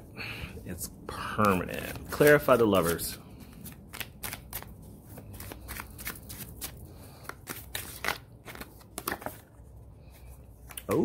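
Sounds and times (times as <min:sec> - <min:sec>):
cards being shuffled: 0:01.3 - 0:09.6.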